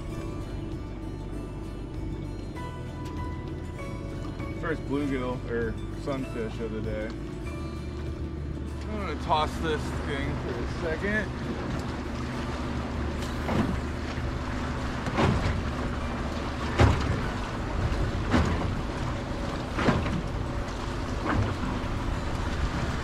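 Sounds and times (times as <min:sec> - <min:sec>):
low motor hum: 0:00.0 - 0:23.0
water slapping against boat hull: 0:08.8 - 0:23.0.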